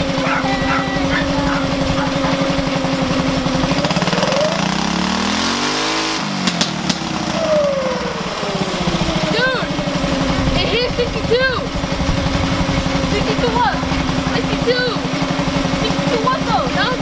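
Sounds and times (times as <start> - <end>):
go-kart engine idling and revving: 0.0 - 17.0.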